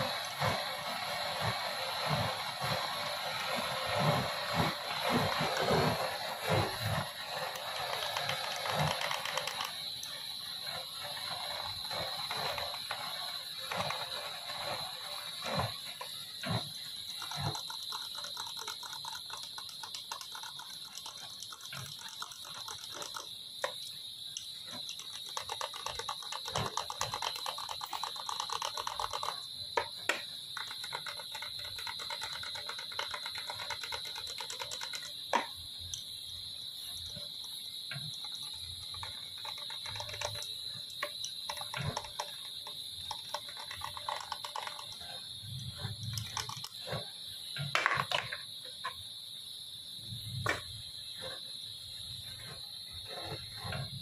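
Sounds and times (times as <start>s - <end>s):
steady high-pitched whine: 0.0s - 54.0s
hand tools clicking and scraping metal: 36.8s - 47.1s.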